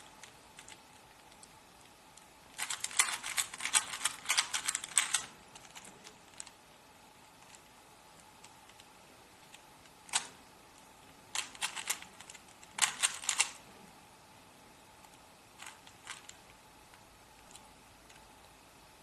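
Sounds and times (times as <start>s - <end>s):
puzzle cube clicking: 0.1s - 6.6s, 7.4s - 10.4s, 11.3s - 13.6s, 15.0s - 16.6s.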